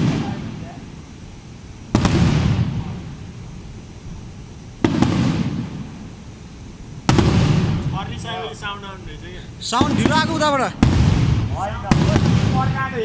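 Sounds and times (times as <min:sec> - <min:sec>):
firework bangs with rumble: 0:00.0 - 0:00.6, 0:01.9 - 0:03.4, 0:04.8 - 0:06.1, 0:07.0 - 0:08.2, 0:09.8 - 0:13.0.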